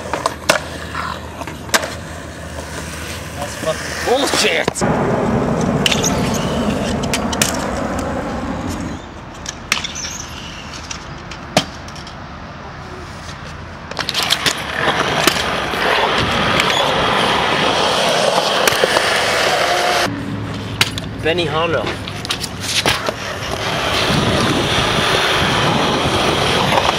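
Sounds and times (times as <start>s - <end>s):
skateboard clacks: 0.0s - 3.2s, 22.0s - 26.9s
skateboard wheels rolling on concrete: 0.0s - 26.9s.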